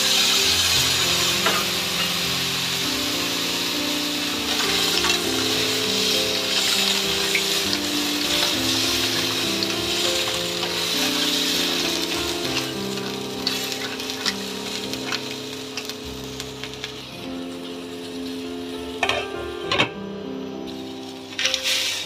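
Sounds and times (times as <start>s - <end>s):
clams sizzling in a skillet: 0.0s - 19.8s, 20.4s - 22.0s.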